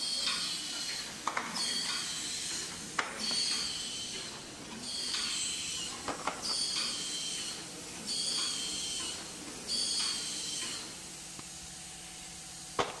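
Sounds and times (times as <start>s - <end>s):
wrapping machine hiss and whistle: 0.0s - 11.1s.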